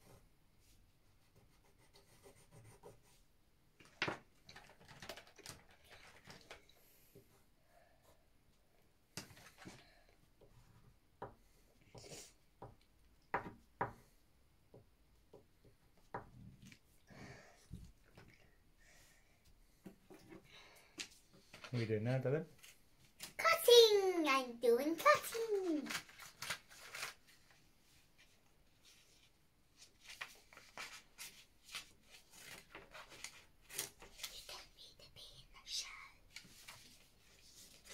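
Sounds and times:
crayon scribbling on paper: 1.2 - 3.2.

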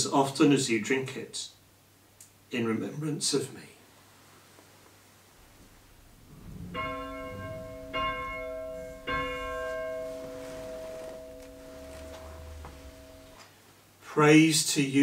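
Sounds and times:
bell ringing: 6.3 - 13.4.

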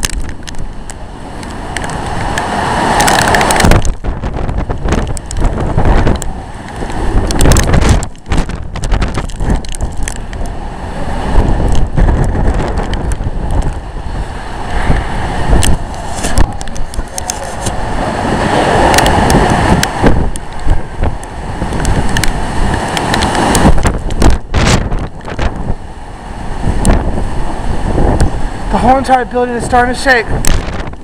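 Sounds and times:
driving rain: 0.0 - 31.0
gusting wind: 0.0 - 31.0.

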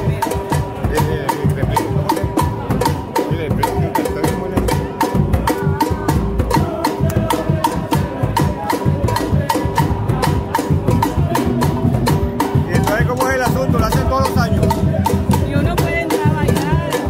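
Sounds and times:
band playing live: 0.0 - 17.0
sharp percussion hits: 0.0 - 17.0.

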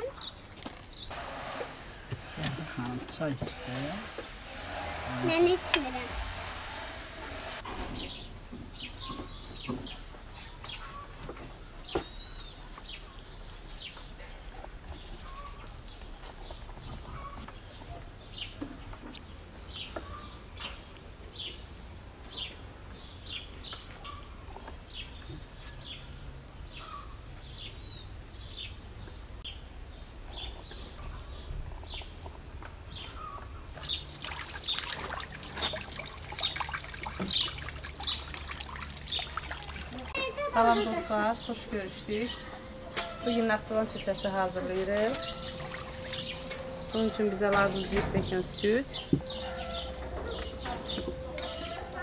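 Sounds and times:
small birds chirping: 32.9 - 52.0
tap running water: 33.8 - 40.2, 45.1 - 46.6.

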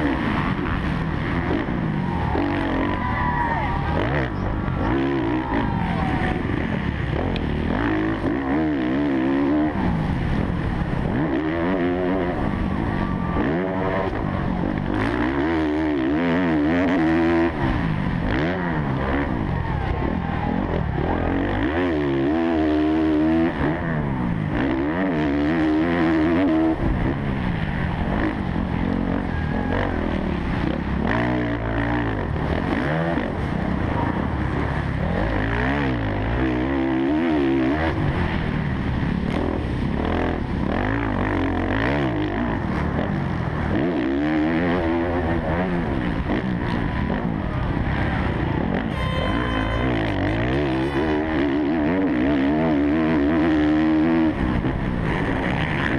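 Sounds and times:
motocross bike engine revving: 0.0 - 55.9.

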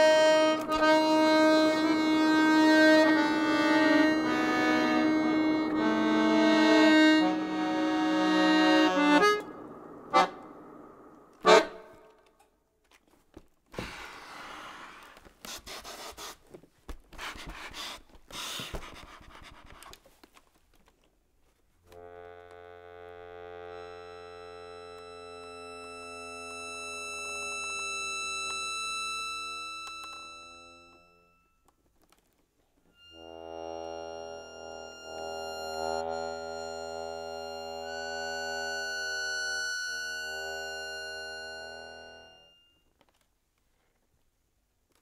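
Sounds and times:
sustained tones chord: 0.0 - 12.1, 33.0 - 42.7
accordion chord: 0.0 - 12.3, 21.9 - 31.6, 33.0 - 42.8.

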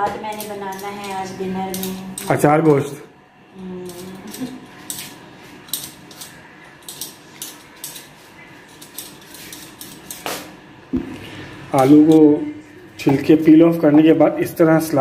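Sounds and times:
knife scraping potato skin: 3.8 - 10.4.

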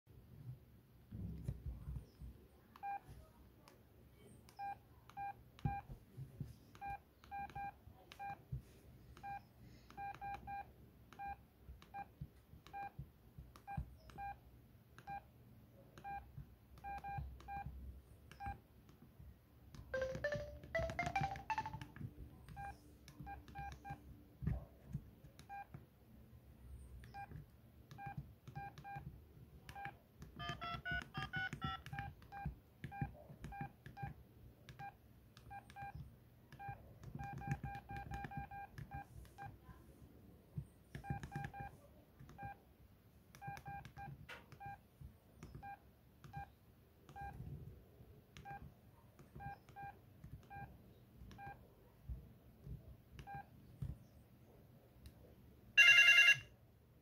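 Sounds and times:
phone keypad beeps: 2.8 - 3.0, 4.6 - 5.9, 6.8 - 8.4, 9.2 - 13.0, 13.6 - 14.4, 15.0 - 15.3, 16.0 - 18.6, 19.8 - 24.0, 25.4 - 25.7, 27.0 - 29.1, 29.7 - 39.5, 41.0 - 41.7, 47.1 - 47.4, 48.4 - 48.6, 49.4 - 50.7, 51.3 - 51.6, 53.2 - 53.5, 55.8 - 56.5.

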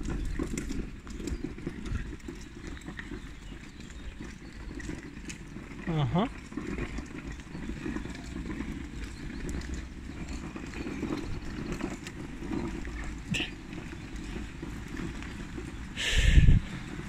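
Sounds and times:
wind on microphone: 16.0 - 16.9.

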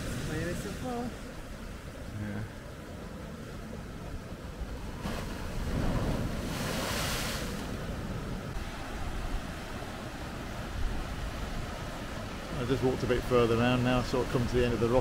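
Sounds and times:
sea waves washing over rocks: 0.0 - 1.7, 4.7 - 15.0.

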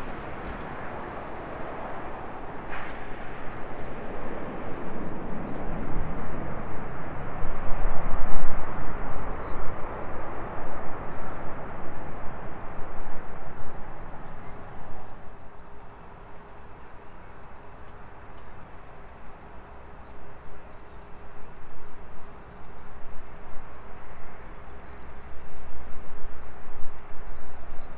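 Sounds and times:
jet engines roaring: 0.0 - 17.7.

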